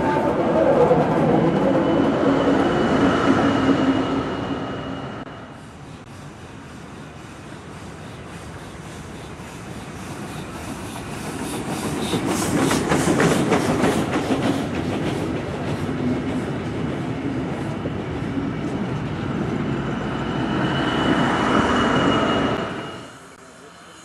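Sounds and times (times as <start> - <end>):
diesel locomotive engine whine: 0.0 - 24.0
steam locomotive exhaust beats: 5.3 - 22.2.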